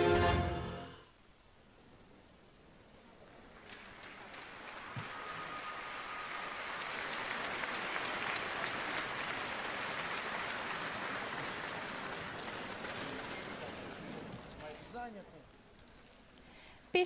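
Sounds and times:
crowd applauding: 3.4s - 15.3s.

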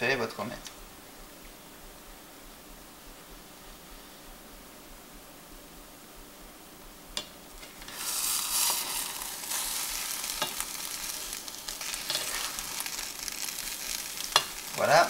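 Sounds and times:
omelette sizzling in a pan: 7.2s - 15.0s
spatula scraping and tapping pan: 7.6s - 13.4s, 14.2s - 14.7s.

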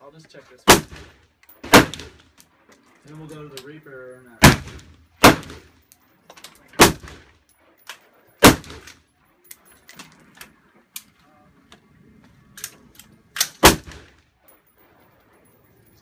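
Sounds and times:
rifle shots with echo: 0.7s - 2.2s, 4.4s - 5.8s, 6.8s - 7.3s, 8.4s - 8.9s, 13.4s - 14.2s.

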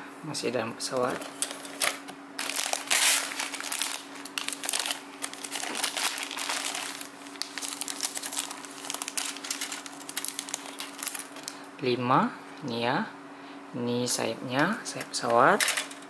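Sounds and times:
plastic bags crinkling: 0.9s - 11.7s, 15.3s - 16.0s.

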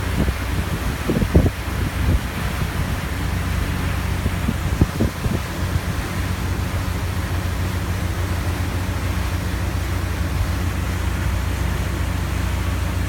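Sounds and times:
hiss of wind and water: 0.0s - 13.0s
ship engines droning: 0.0s - 13.0s.

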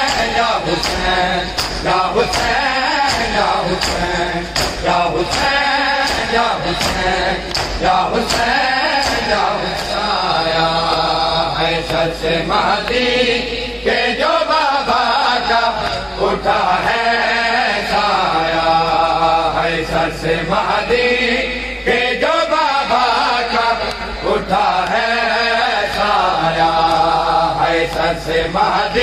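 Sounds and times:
chest-beating slaps: 0.0s - 13.1s
men chanting a lament: 0.0s - 29.0s.

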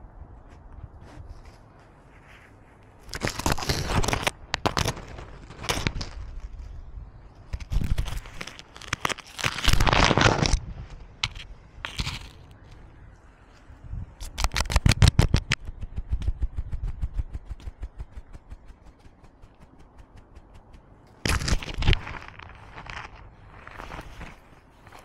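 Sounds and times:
camera scraping on fur and gravel: 0.5s - 6.8s, 7.4s - 12.6s, 21.1s - 25.0s.

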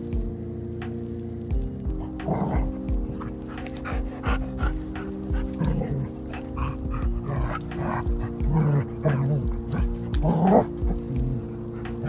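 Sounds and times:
light background music: 0.0s - 12.0s
dog panting: 2.0s - 12.0s
dog making excited noises: 2.6s - 11.2s.

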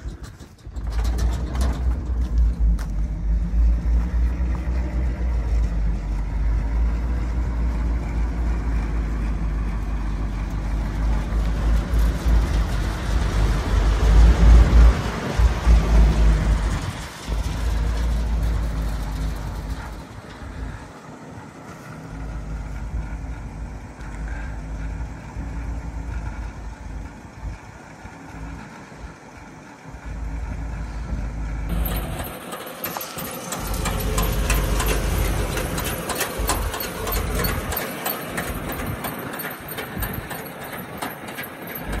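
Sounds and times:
truck engine idling: 0.0s - 42.0s.

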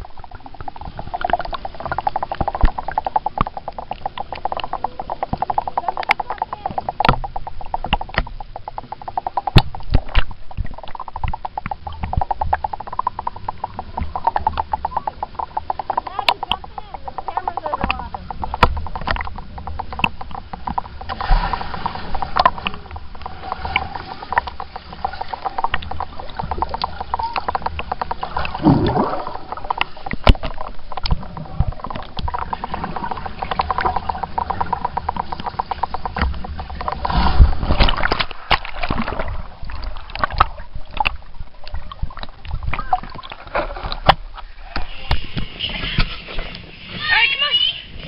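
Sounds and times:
underwater clicks and pops: 0.0s - 46.7s
low underwater rumble: 0.0s - 46.9s
rush of bubbles: 25.1s - 35.9s.

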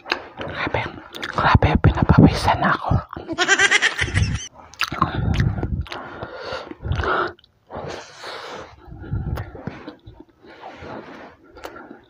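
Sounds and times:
person chewing food: 4.6s - 7.6s, 11.4s - 12.0s.

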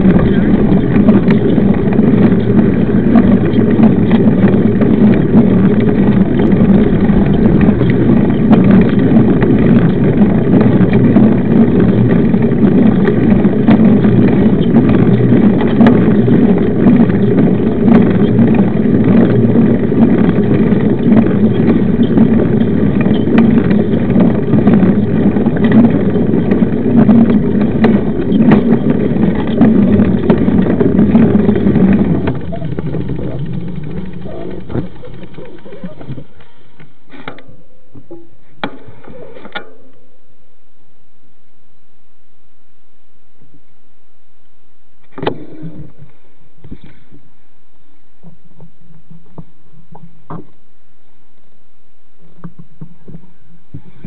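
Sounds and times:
wind buffeting microphone: 0.0s - 36.6s
bike tyres humming on asphalt: 0.0s - 37.4s.

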